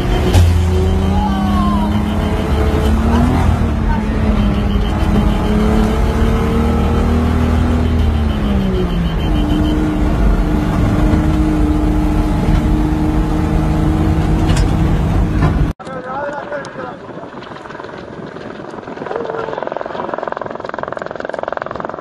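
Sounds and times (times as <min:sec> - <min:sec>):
rough ride rumble: 0:09.9 - 0:22.0.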